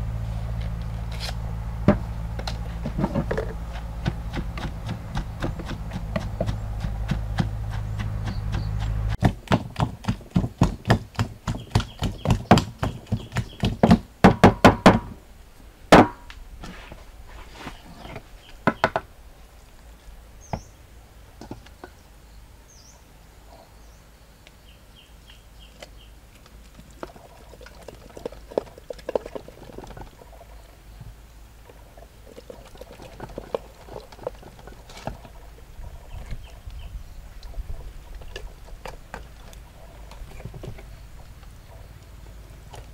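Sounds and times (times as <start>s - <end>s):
wooden pestle pounding in mortar: 2.8s - 15.1s, 15.9s - 16.2s
quiet handling sounds: 16.3s - 18.6s.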